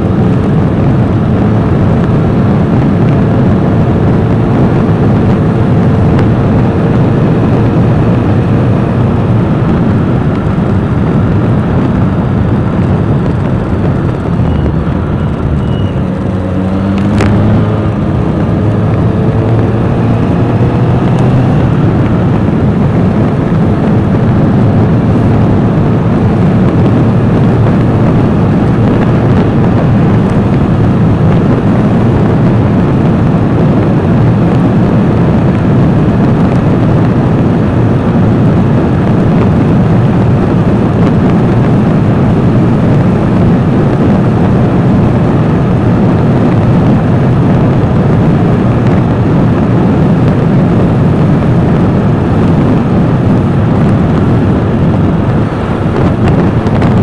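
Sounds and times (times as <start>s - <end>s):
engine tone rising: 0.0s - 32.7s
road noise: 0.0s - 57.0s
wind rush on microphone: 0.0s - 57.0s.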